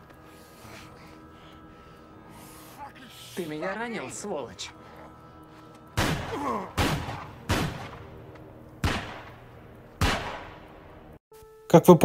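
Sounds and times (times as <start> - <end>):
handgun shots: 10.0 - 10.6.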